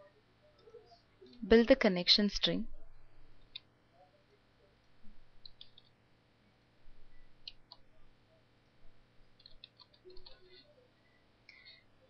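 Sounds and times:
keyboard and mouse clicks: 0:05.4 - 0:05.9, 0:09.4 - 0:10.4.

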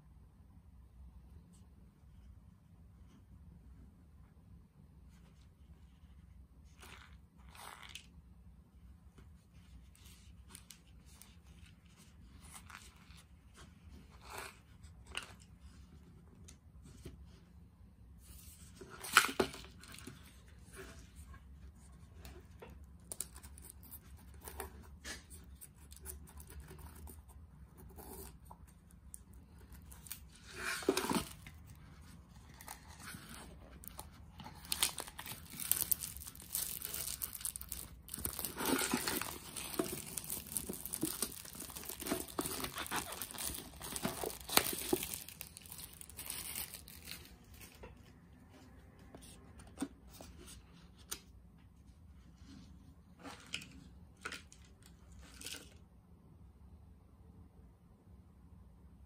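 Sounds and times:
plastic wrap crinkling: 0:32.4 - 0:48.0.

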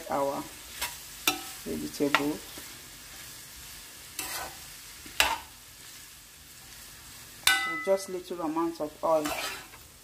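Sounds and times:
food sizzling in a frying pan: 0:00.0 - 0:10.0
spoon scraping and stirring: 0:04.1 - 0:05.5, 0:09.1 - 0:09.8.

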